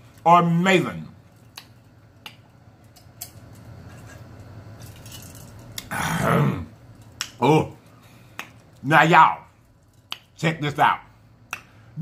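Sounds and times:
man swallowing: 5.8s - 6.8s.

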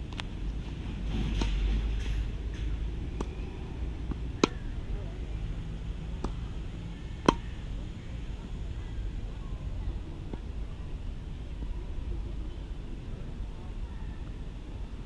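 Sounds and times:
tennis ball knocks: 4.0s - 4.8s, 6.1s - 6.5s, 7.2s - 7.6s.

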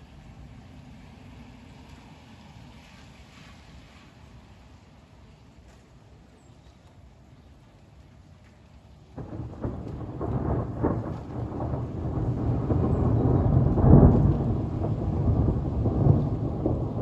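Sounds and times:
rolling thunder: 9.2s - 17.0s.

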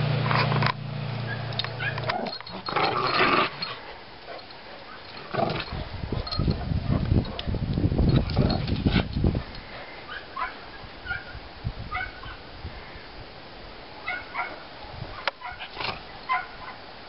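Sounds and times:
dog barking: 1.3s - 2.1s, 10.1s - 12.4s, 14.0s - 15.7s, 16.3s - 16.8s
dogs play-growling: 1.8s - 7.1s, 8.1s - 10.2s, 15.3s - 16.4s.

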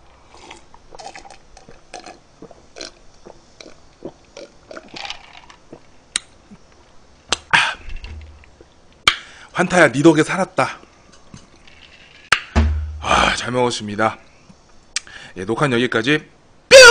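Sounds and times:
man swallowing soda: 0.2s - 8.7s
breathy exhale: 9.2s - 9.5s, 13.0s - 13.4s, 15.0s - 15.4s.

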